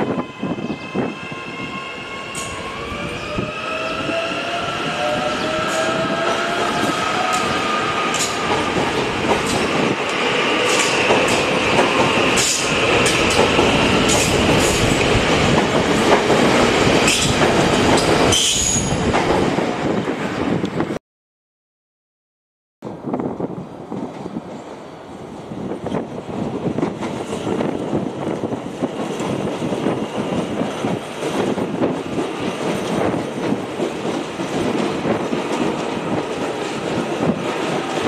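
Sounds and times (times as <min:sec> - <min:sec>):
electric train whine and rumble: 0:00.0 - 0:21.0, 0:22.8 - 0:38.0
train wheels clicking over rail joints: 0:08.1 - 0:18.5.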